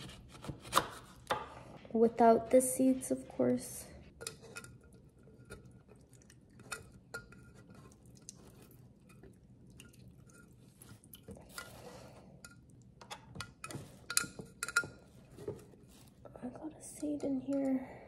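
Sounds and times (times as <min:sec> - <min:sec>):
soft squeezing rustle: 0:15.1 - 0:16.7.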